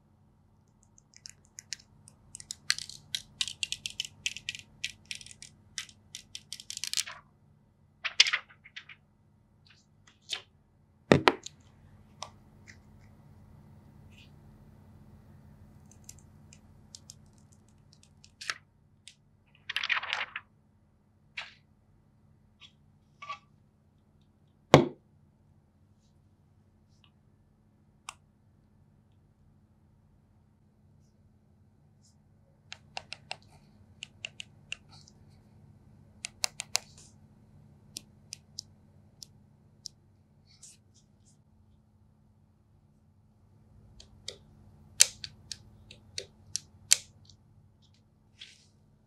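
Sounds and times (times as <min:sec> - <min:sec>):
faint steady hum: 0:00.0 - 0:49.0
crinkling plastic rustle: 0:19.5 - 0:20.4.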